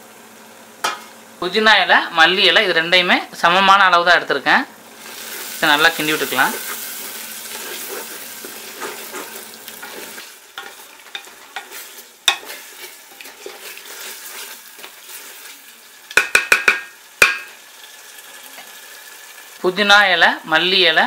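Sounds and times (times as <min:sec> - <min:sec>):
food sizzling in oil: 0:00.0 - 0:21.0
spatula stirring and scraping pot: 0:05.0 - 0:15.7
spatula knocking on pot rim: 0:16.1 - 0:17.5.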